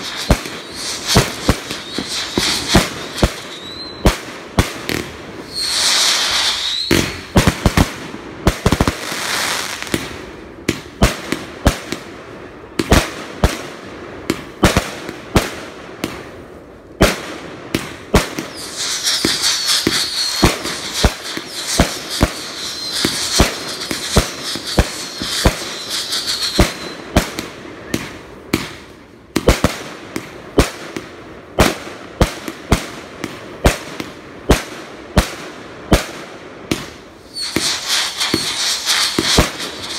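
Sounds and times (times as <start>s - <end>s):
high wavering whistle: 0.0s - 4.0s, 5.5s - 7.3s, 18.5s - 27.1s, 37.3s - 39.9s
fireworks crackling: 0.0s - 12.0s, 17.0s - 39.9s
fireworks bangs and pops: 0.0s - 16.4s, 17.0s - 39.9s.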